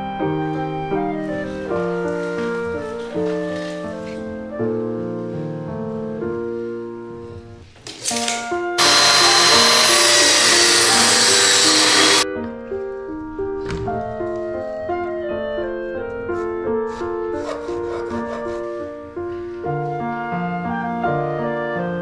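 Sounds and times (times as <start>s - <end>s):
background music piano and woodwinds: 0.0s - 22.0s
table saw cutting wood: 8.8s - 12.2s.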